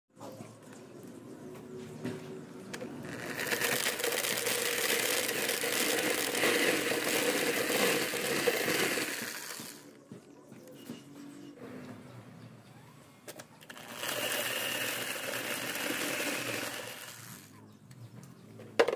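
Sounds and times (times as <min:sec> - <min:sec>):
corn kernels rattling into bucket: 0:03.0 - 0:09.9, 0:13.7 - 0:17.5
electric drill whirring: 0:03.0 - 0:09.9, 0:13.6 - 0:17.5.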